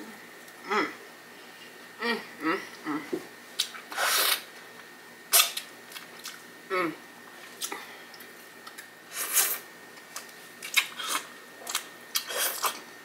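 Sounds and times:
wet biting and slurping: 0:03.6 - 0:04.5, 0:10.6 - 0:12.8.

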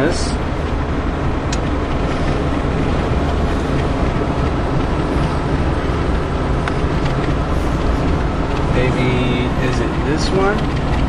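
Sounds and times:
car road noise from inside: 0:00.0 - 0:11.0.

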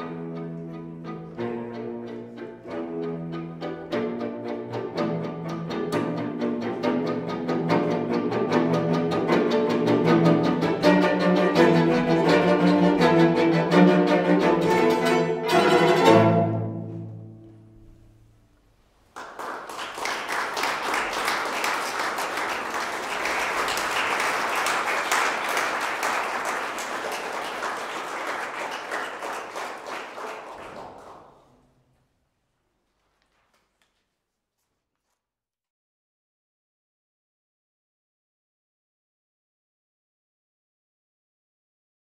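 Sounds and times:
string quartet playing chords: 0:00.0 - 0:18.6
audience applause: 0:19.1 - 0:31.6.

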